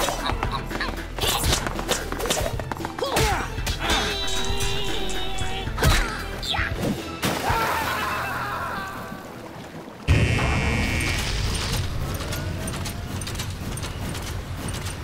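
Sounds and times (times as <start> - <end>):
splash: 6.8 - 10.1.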